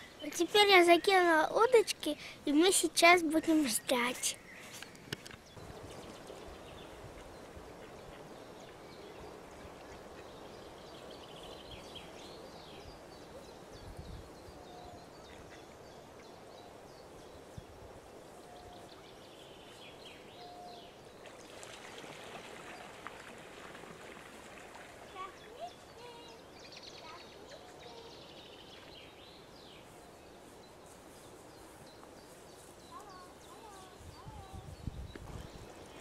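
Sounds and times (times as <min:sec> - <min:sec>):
small birds chirping: 0:00.0 - 0:21.8, 0:24.8 - 0:36.0
wind: 0:00.0 - 0:36.0
water noise: 0:21.1 - 0:26.4.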